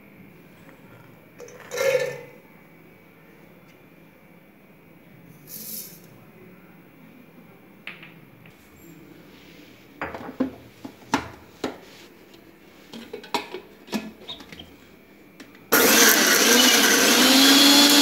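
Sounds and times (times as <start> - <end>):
mixer grinder motor: 15.7 - 18.0.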